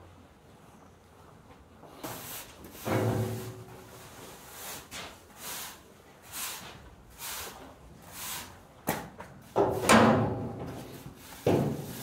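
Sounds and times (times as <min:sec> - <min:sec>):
tool scraping silage on concrete: 0:02.0 - 0:08.6, 0:10.9 - 0:12.0.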